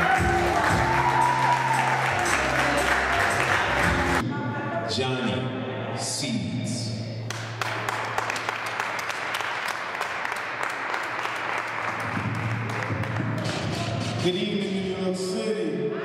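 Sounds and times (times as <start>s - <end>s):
audience applauding: 0.0s - 4.2s, 7.3s - 14.8s.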